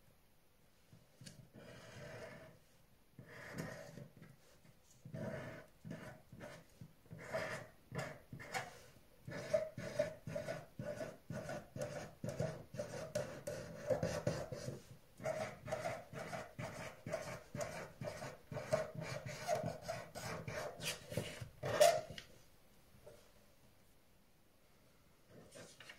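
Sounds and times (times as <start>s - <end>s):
felt-tip pen scratching on paper: 1.3s - 2.6s, 3.2s - 22.2s.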